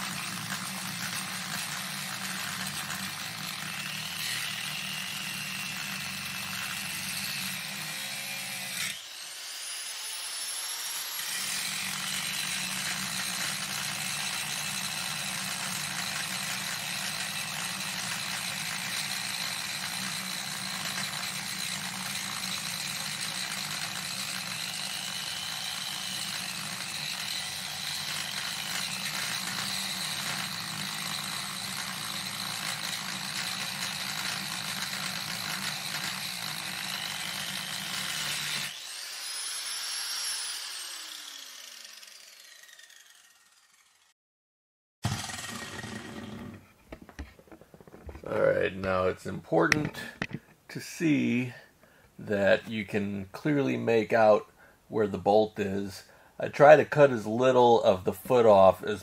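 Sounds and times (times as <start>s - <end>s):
angle grinder grinding metal: 0.0s - 44.1s, 45.0s - 50.5s
grinder motor spinning down: 0.0s - 44.1s, 45.0s - 46.7s.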